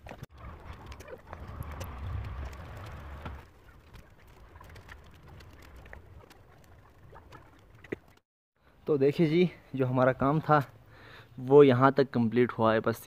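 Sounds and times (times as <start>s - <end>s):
low rumble: 0.3s - 3.5s.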